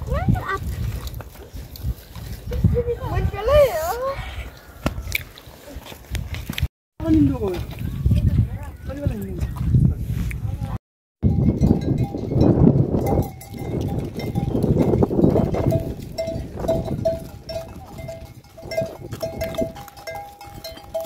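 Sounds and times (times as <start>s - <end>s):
livestock bells clinking: 11.2s - 21.0s.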